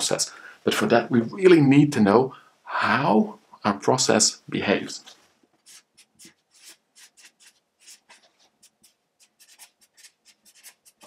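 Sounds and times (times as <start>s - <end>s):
marker pen writing on paper: 5.6s - 11.0s.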